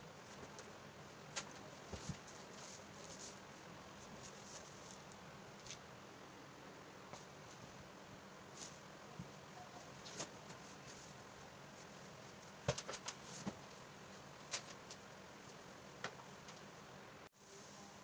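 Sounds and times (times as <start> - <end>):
room hiss: 0.0 - 18.0.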